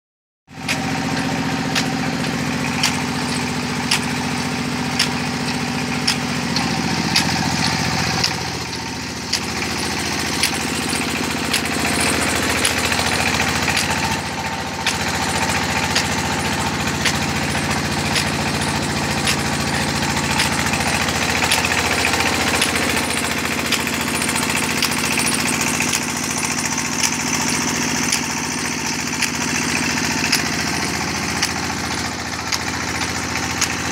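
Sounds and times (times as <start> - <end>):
small engine running: 0.5 - 33.9
sharp tick: 2.8 - 4.2, 5.0 - 9.6, 10.4 - 14.2.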